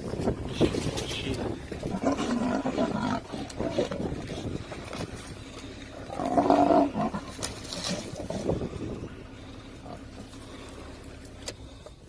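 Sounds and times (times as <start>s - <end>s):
lion snarling and growling: 1.3s - 5.2s, 5.9s - 10.8s.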